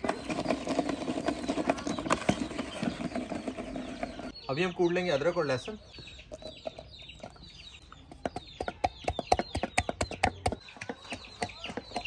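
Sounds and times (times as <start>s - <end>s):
bird calls: 0.0s - 12.0s
pestle knocking in wooden mortar: 8.1s - 12.0s.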